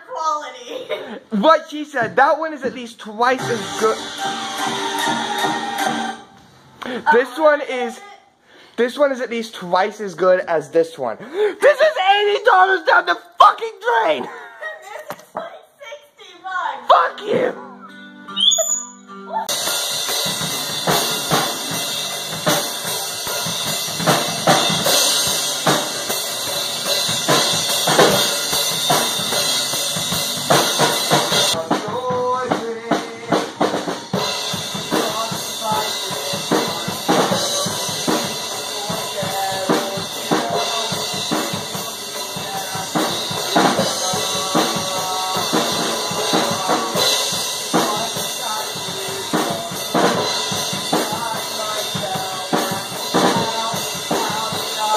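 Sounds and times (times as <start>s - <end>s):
drum kit playing rock beat: 1.9s - 7.2s, 16.9s - 18.8s, 19.4s - 54.9s
person singing into microphone: 31.6s - 33.7s, 34.9s - 54.9s.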